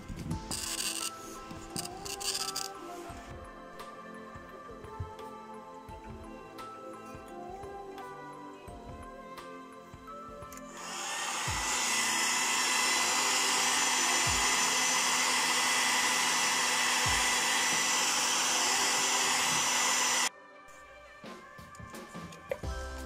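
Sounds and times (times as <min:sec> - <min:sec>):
heat gun blowing hot air: 0:00.5 - 0:03.0, 0:10.6 - 0:20.3.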